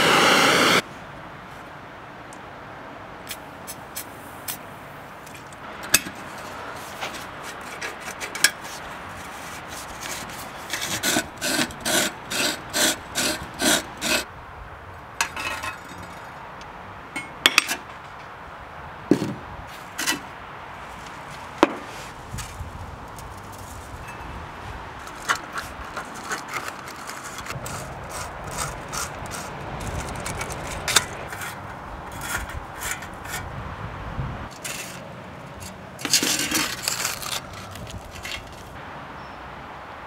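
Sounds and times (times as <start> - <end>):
hand tool scraping metal: 5.8 - 14.3, 25.0 - 33.5, 34.5 - 38.6.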